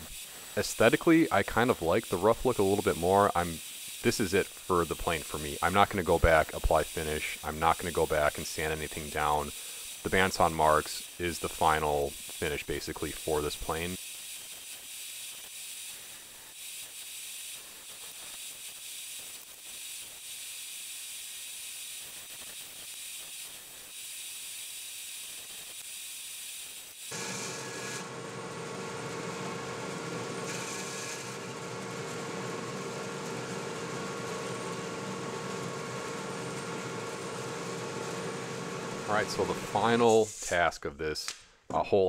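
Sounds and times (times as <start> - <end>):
bandsaw running: 0.0 - 14.2, 26.9 - 40.4.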